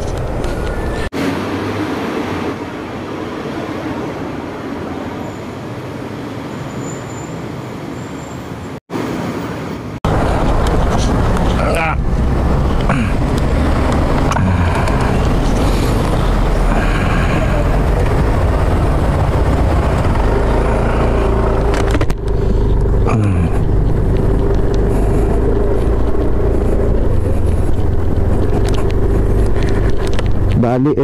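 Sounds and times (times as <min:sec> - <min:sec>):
wind and road noise: 0:00.0 - 0:31.0
motorcycle engine running: 0:10.1 - 0:30.6.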